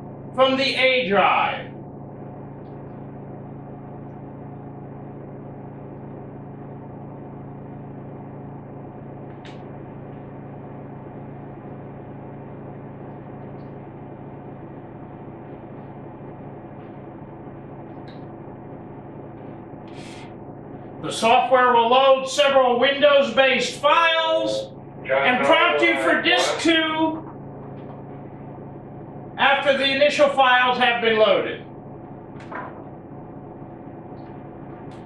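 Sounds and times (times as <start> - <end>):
low electrical hum with hiss: 13.1 - 35.0.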